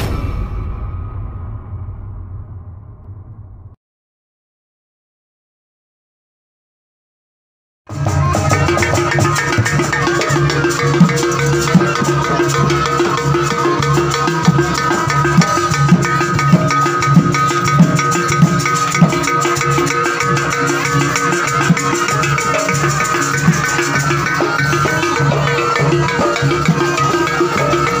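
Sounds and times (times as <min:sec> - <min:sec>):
gamelan drum strokes: 0:07.9 - 0:28.0
rattling percussion: 0:07.9 - 0:28.0.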